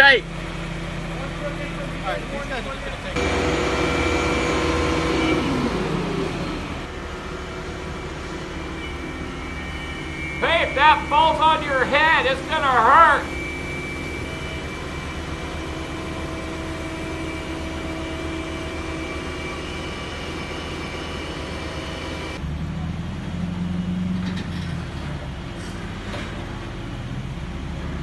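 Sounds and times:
crane engine running: 0.0 - 28.0
deep truck engine hum: 0.0 - 28.0
thin high whine: 3.2 - 22.4.

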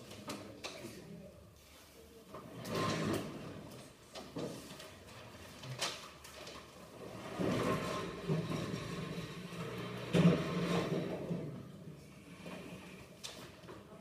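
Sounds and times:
table scraping across floor: 2.5 - 3.6, 7.0 - 11.6
knocks and rustles: 2.5 - 11.8.

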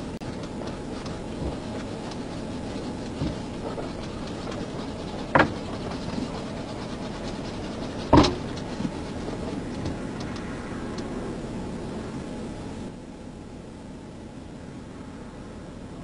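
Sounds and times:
car cabin rumble: 0.0 - 16.0
sharp knocks: 5.3 - 6.3, 8.0 - 9.0.

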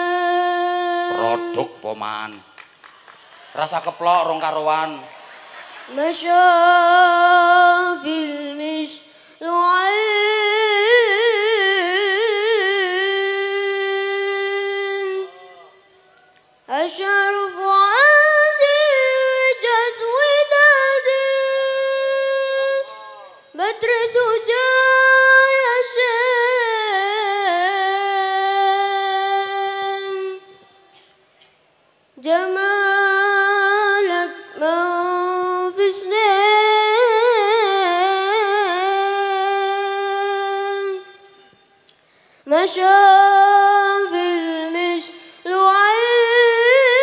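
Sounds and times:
boy singing into a microphone: 0.0 - 1.8, 5.9 - 15.9, 16.7 - 30.9, 32.2 - 41.7, 42.5 - 47.0.

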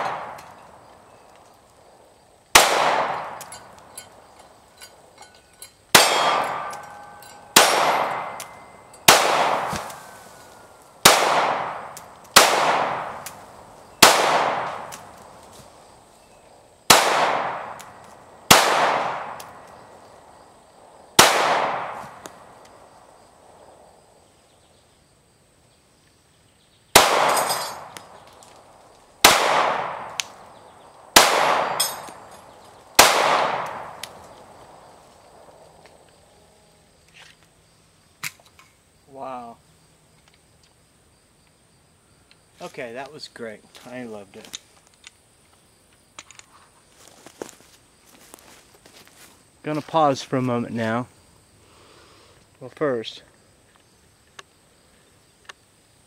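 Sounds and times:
pistol shots echoing: 0.0 - 0.8, 2.5 - 3.8, 5.9 - 10.2, 11.0 - 13.4, 14.0 - 15.1, 16.9 - 19.6, 21.2 - 22.6, 26.9 - 28.3, 29.2 - 34.8.

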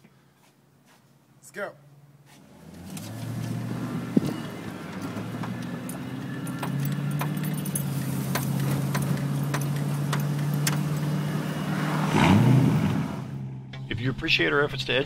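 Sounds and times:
road noise inside car: 1.9 - 13.8
car engine: 1.9 - 14.6
light clicks and rattles: 4.2 - 11.1.

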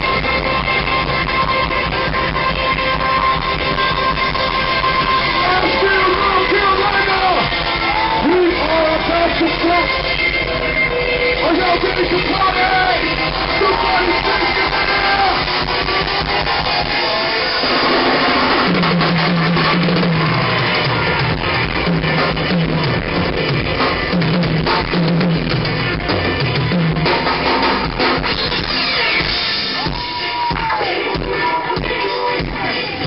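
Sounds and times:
bass riff: 0.0 - 33.0
live rock band playing: 0.0 - 33.0.

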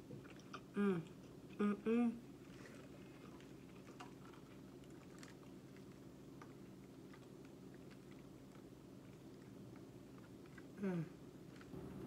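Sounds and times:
faint chewing: 0.0 - 1.6, 2.3 - 11.8
low steady hum: 0.0 - 12.0.

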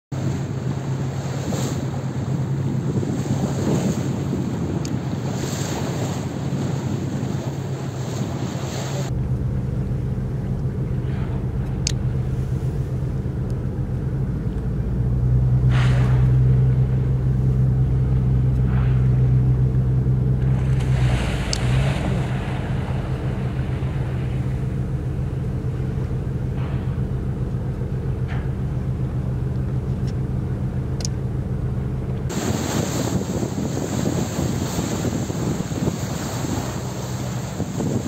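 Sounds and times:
boat engine drone: 0.1 - 38.0
rushing water: 0.1 - 38.0
wind: 0.1 - 38.0
short whooshes: 15.6 - 16.6.

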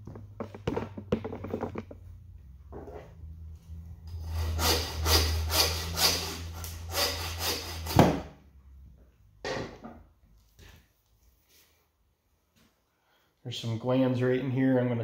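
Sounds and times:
hand saw cutting bone: 4.2 - 8.2.

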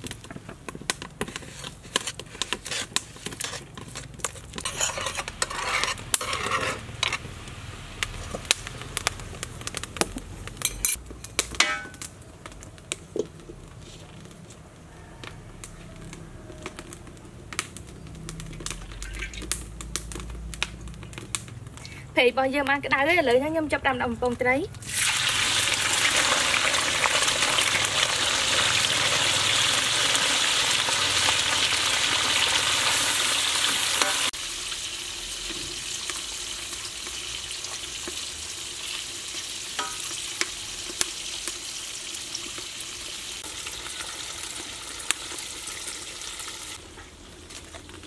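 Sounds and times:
utensils clinking against pans: 4.6 - 7.3.

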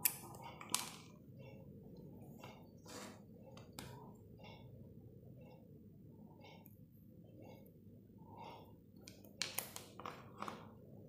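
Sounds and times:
rustling on tabletop: 2.8 - 3.2.

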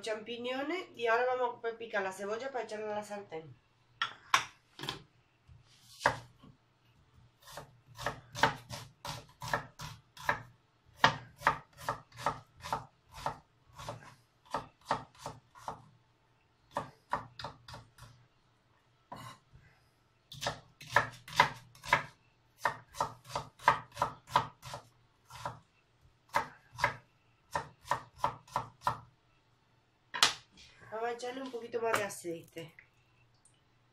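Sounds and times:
knife chopping on wooden board: 7.4 - 15.8, 20.3 - 25.6, 26.3 - 29.0.

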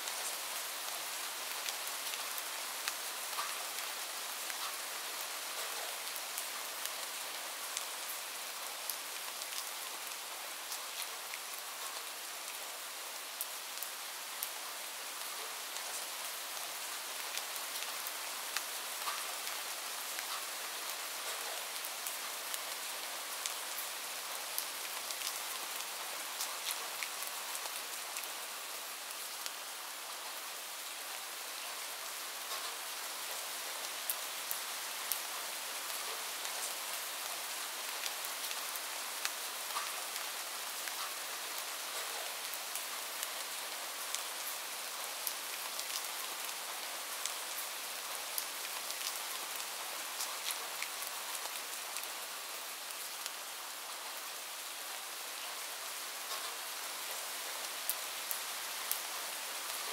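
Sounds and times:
steady rain hiss: 0.0 - 59.9
raindrop ticks: 4.5 - 4.8.

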